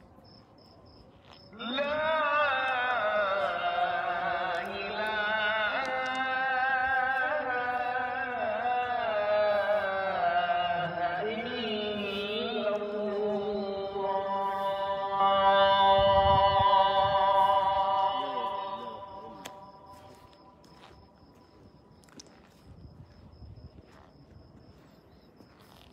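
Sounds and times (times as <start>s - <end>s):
man chanting call to prayer: 1.5s - 20.5s.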